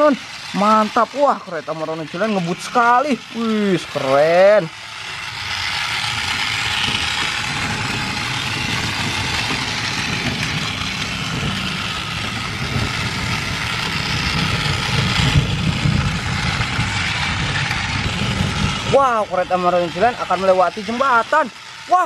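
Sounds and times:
toy train motors whirring: 0:00.0 - 0:22.0
wheels rattling over track joints: 0:00.0 - 0:22.0.

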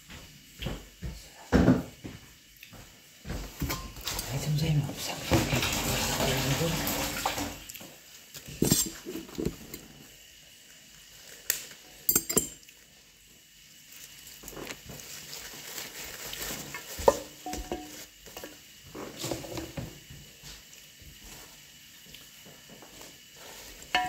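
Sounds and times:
dishes and utensils clinking: 0:03.6 - 0:04.4, 0:08.6 - 0:09.8, 0:12.1 - 0:12.7, 0:17.0 - 0:18.0.

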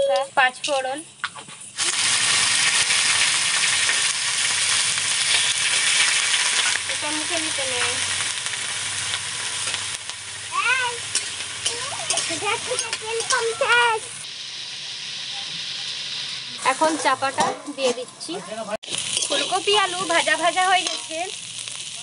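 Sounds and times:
vegetables sizzling in hot oil: 0:00.1 - 0:22.0
metal spatula stirring in wok: 0:11.0 - 0:13.6, 0:18.9 - 0:21.2.

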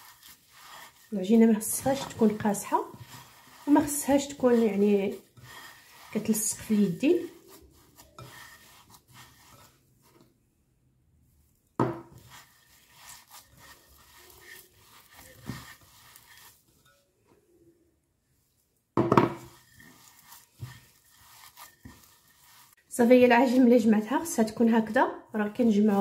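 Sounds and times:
scrape against glass bowl: 0:00.0 - 0:10.2, 0:12.0 - 0:17.4, 0:19.2 - 0:22.8
hands crumbling dough: 0:12.1 - 0:16.6.

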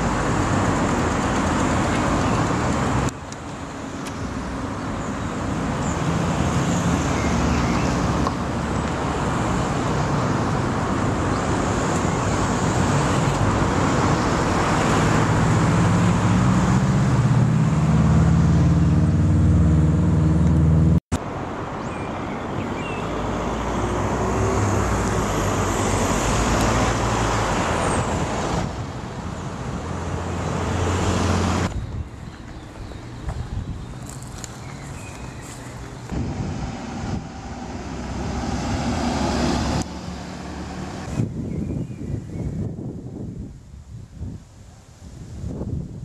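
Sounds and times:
road traffic passing: 0:00.0 - 0:43.8
heavy vehicle engine pulling away: 0:12.2 - 0:21.0, 0:34.7 - 0:41.3.

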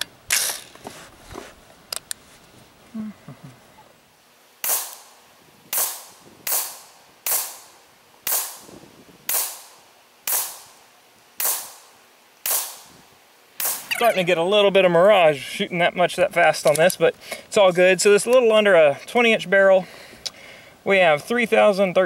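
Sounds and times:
suppressed rifle shots: 0:04.6 - 0:05.1, 0:11.4 - 0:12.9.

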